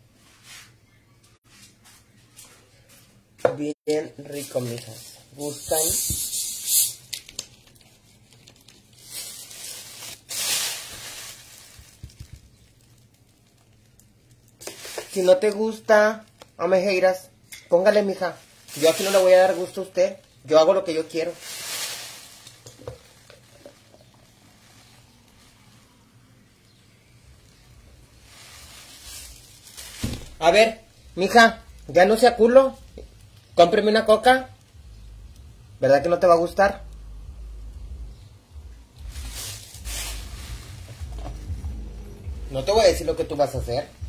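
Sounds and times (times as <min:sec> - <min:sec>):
faint hiss: 0:04.1 - 0:07.2, 0:09.0 - 0:16.6, 0:17.2 - 0:44.0
plastic bag crinkling: 0:04.2 - 0:16.6, 0:18.2 - 0:34.7, 0:39.0 - 0:44.0
low steady hum: 0:34.5 - 0:44.0.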